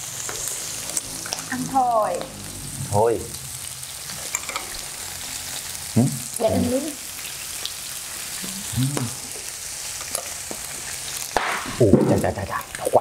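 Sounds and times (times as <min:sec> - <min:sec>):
meat sizzling on a grill: 0:00.0 - 0:13.0
short voiced sounds: 0:08.5 - 0:09.2.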